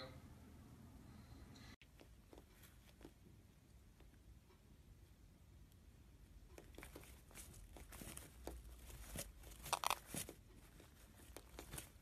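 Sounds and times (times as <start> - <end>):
parrot beak clicks and scratches: 6.5 - 12.0.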